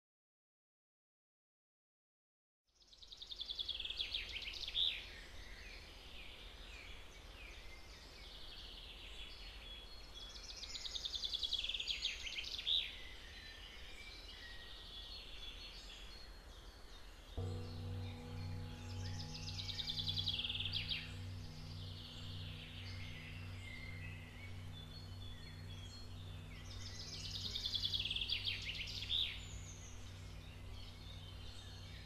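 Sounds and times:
bird singing trilled phrases: 0:02.8 - 0:32.0
birds chirping softly: 0:02.8 - 0:32.0
low sustained music tones: 0:02.8 - 0:32.0
steady low rumble: 0:17.4 - 0:32.0.

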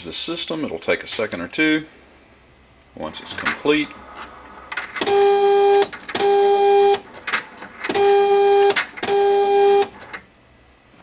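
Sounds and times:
faint mechanical noises: 0:02.8 - 0:11.0
postage meter buzzing: 0:05.0 - 0:07.1, 0:07.9 - 0:10.2.

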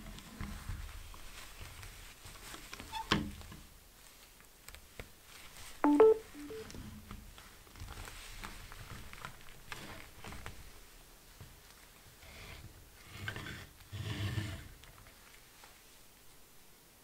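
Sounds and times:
phone electronic chime: 0:05.8 - 0:06.7.

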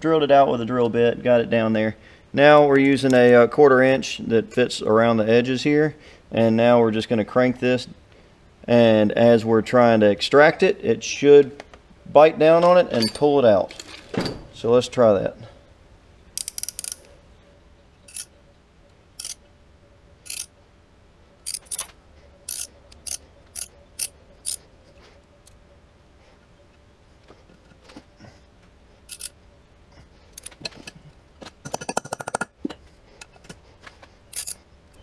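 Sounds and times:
metal tools clicking: 0:16.4 - 0:17.1, 0:18.1 - 0:18.3, 0:19.2 - 0:19.4, 0:20.2 - 0:20.5, 0:21.4 - 0:24.6, 0:29.1 - 0:29.4, 0:34.3 - 0:35.0
ratchet clicking: 0:16.4 - 0:17.1, 0:18.1 - 0:18.3, 0:19.2 - 0:19.4, 0:20.2 - 0:20.5, 0:21.4 - 0:21.9, 0:22.5 - 0:24.6, 0:29.1 - 0:29.3, 0:34.3 - 0:34.6.

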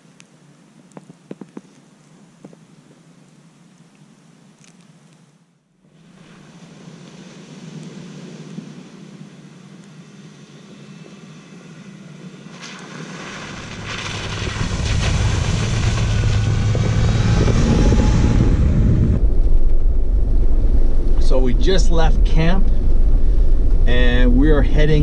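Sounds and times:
vehicle engine rumbling: 0:06.0 - 0:25.0.

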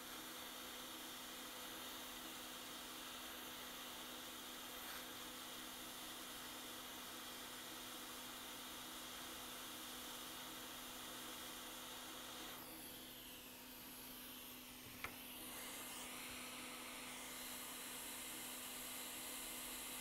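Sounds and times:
hot air blower hissing: 0:00.0 - 0:20.0.

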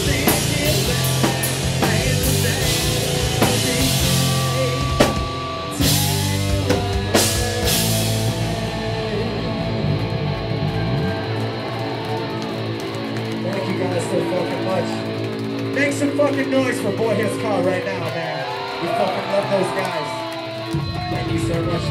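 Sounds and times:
live rock band: 0:00.0 - 0:21.9.

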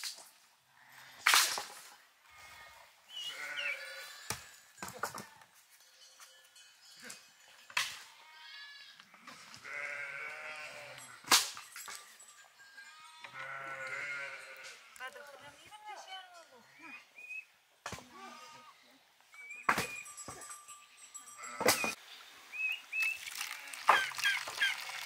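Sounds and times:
sheep or goats bleating: 0:02.3 - 0:04.6, 0:08.0 - 0:11.2, 0:12.8 - 0:15.2, 0:18.1 - 0:18.9, 0:23.5 - 0:24.1.

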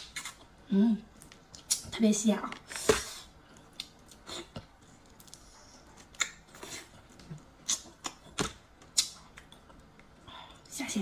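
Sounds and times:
mouth sucking and smacking: 0:03.0 - 0:08.2.

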